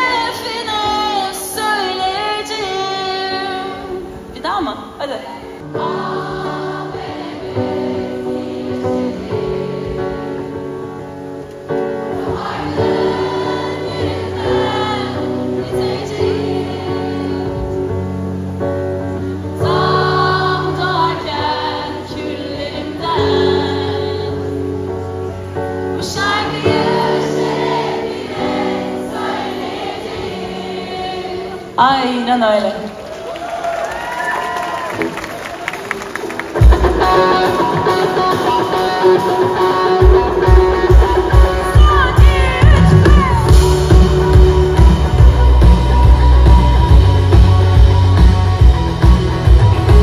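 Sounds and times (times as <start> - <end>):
woman singing: 0.0 - 6.1, 19.6 - 24.5, 37.3 - 48.7
backing voices singing: 5.3 - 10.6, 12.0 - 18.0, 19.5 - 24.7, 26.0 - 31.8, 37.0 - 50.0
live rock band playing: 35.9 - 50.0.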